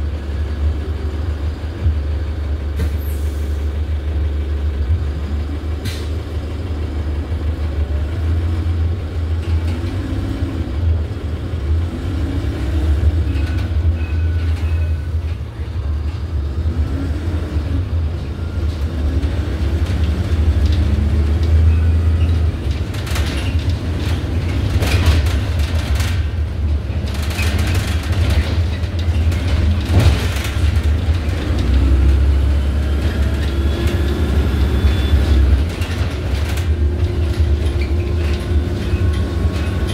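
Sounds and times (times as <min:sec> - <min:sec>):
bus engine rumble: 0:00.0 - 0:39.9
knocks and rattles: 0:19.5 - 0:34.3, 0:35.2 - 0:39.9.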